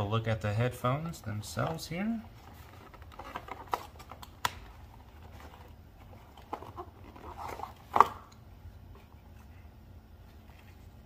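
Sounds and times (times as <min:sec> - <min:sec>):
packaging rustling: 0:02.3 - 0:08.3.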